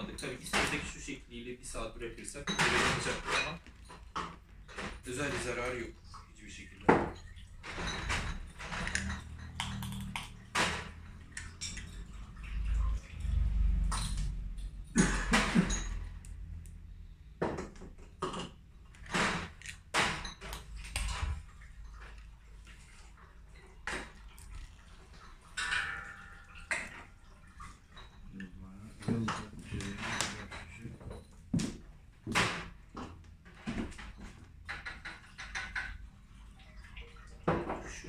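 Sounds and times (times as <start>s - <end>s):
glass bottles clinking: 2.2s - 12.7s, 13.4s - 16.6s, 17.4s - 22.4s, 25.3s - 31.9s.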